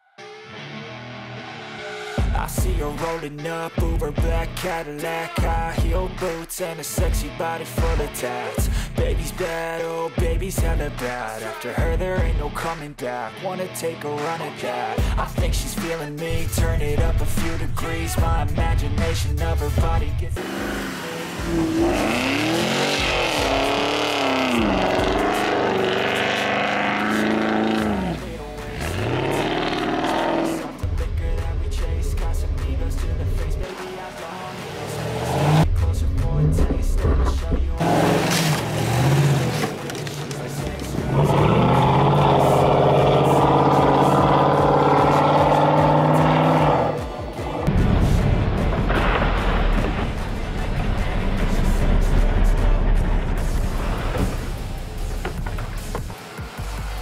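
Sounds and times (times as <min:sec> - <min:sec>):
car engine revving: 0:15.9 - 0:48.0, 0:48.7 - 0:57.0
tyres spinning in snow: 0:36.8 - 0:41.2.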